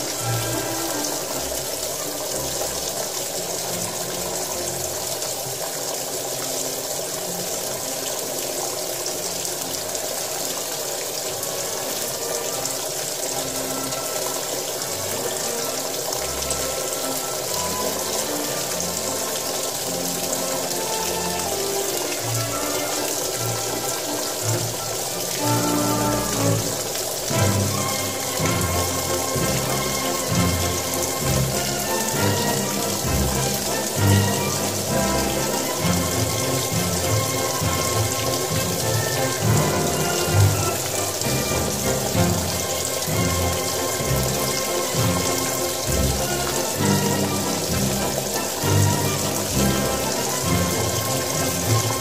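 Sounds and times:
music playing: 0.0s - 2.7s, 13.4s - 52.0s
water rushing in washing machine: 0.0s - 52.0s.

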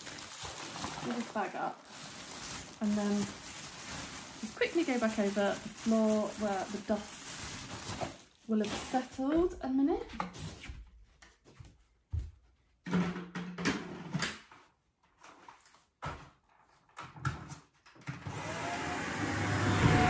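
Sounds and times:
handling knocks and rustles: 0.0s - 17.6s
vacuum cleaner running: 18.2s - 20.0s.

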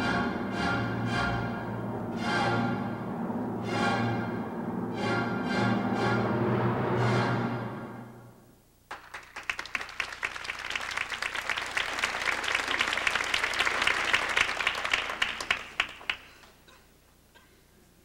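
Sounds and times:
orchestral music: 0.0s - 8.4s
theatre audience applause: 8.9s - 16.6s.

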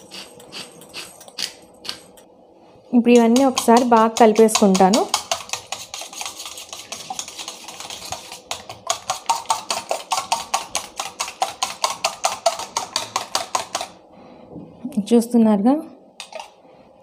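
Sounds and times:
fork beating eggs in steel bowl: 0.0s - 2.2s, 3.0s - 14.0s.

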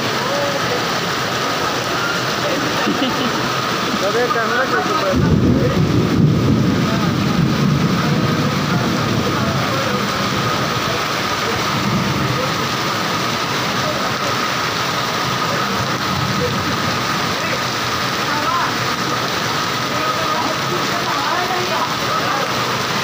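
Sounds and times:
heavy rain downpour: 0.0s - 23.0s.

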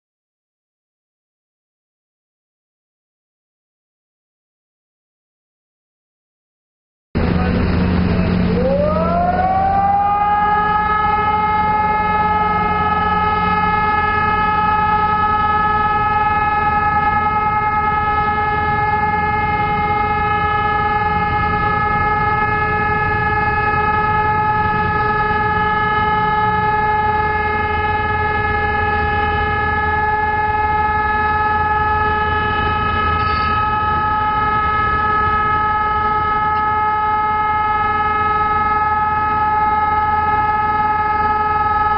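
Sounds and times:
siren long steady tone: 7.2s - 41.9s.

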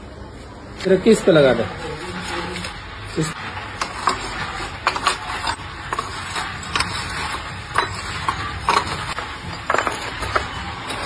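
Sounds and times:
steady background noise: 0.0s - 11.0s
ceramic tiles clacking: 3.3s - 11.0s.

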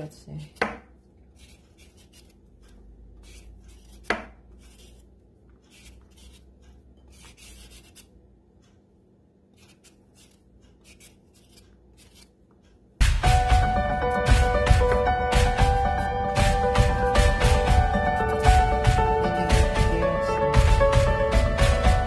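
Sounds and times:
knife scraping carrot: 1.3s - 8.1s, 9.5s - 12.4s
sharp knock: 13.0s - 15.8s.

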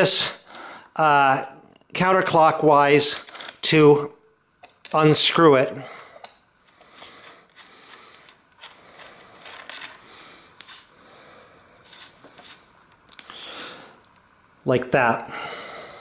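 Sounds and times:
metal threads scraping: 6.6s - 10.9s, 11.8s - 12.9s
small metallic clinks: 9.5s - 10.1s.

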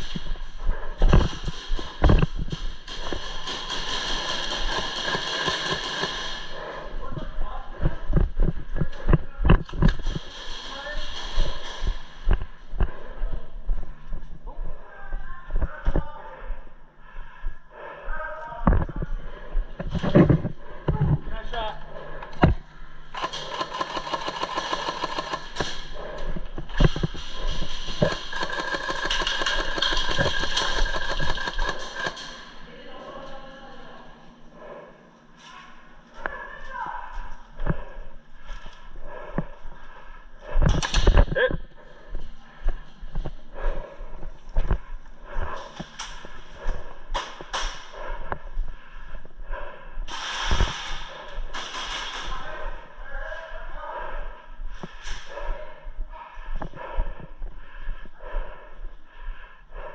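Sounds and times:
airsoft rifles firing full auto: 2.9s - 6.6s, 23.1s - 25.9s, 27.8s - 32.5s.

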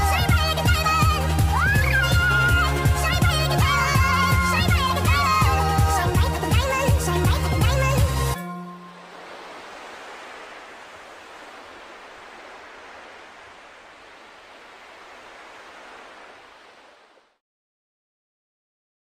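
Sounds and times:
steady hiss: 9.0s - 17.4s.

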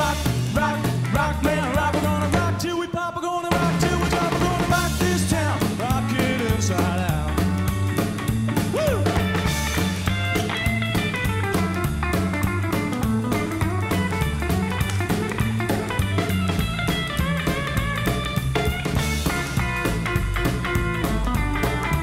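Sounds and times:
drum beat: 0.0s - 2.6s, 3.5s - 22.0s
bass: 0.0s - 22.0s
electric guitar lead runs: 9.2s - 22.0s.

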